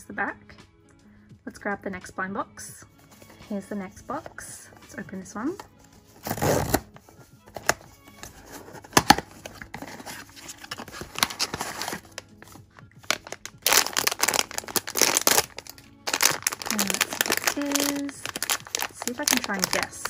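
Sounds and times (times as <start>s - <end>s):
paper rustling: 5.6s - 20.0s
cardboard tab ripping: 6.2s - 6.9s, 7.5s - 20.0s
plastic bag crinkling: 9.5s - 20.0s.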